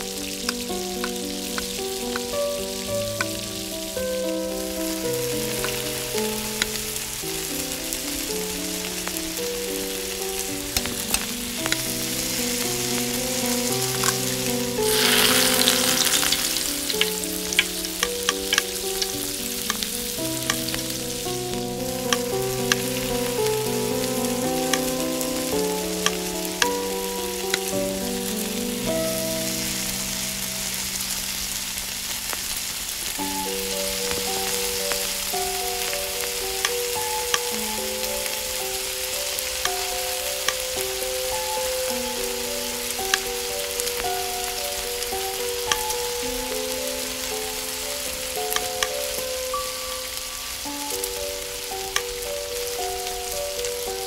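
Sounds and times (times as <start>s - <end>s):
eggs sizzling in hot oil: 0.0s - 54.0s
metal spatula scraping pan: 14.9s - 17.0s.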